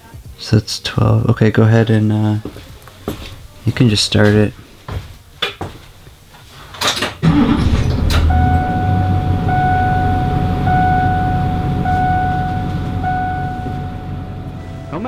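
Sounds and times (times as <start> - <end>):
diesel engine starting and rumbling: 7.2 - 15.0
electronic warning tone: 8.0 - 15.0.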